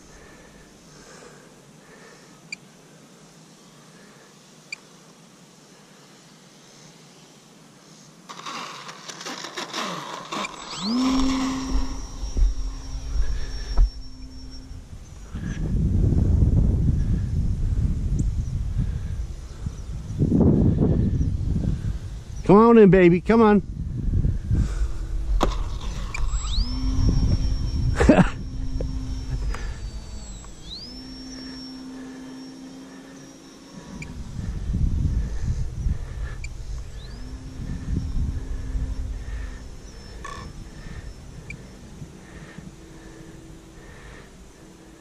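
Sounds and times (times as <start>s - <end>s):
electric motor whine: 0.0s - 1.4s, 8.3s - 45.0s
wind buffeting microphone: 10.6s - 31.6s, 34.0s - 44.1s.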